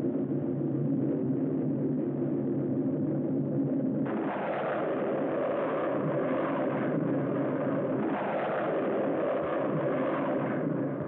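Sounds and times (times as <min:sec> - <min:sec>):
rocket engine roar: 0:04.1 - 0:11.0.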